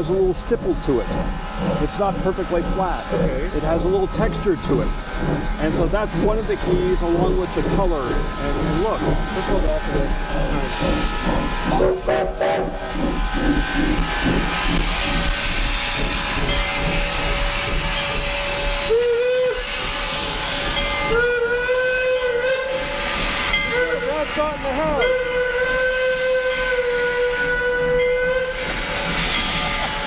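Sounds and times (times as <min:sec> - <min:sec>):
steam hissing: 0:00.0 - 0:30.0
steam locomotive whistle: 0:10.8 - 0:13.0, 0:15.2 - 0:30.0.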